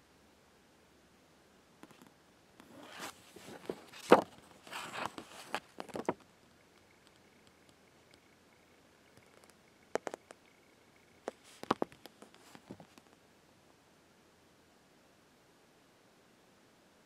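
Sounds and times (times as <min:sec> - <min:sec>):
handling rustles and clicks: 0:01.8 - 0:08.3.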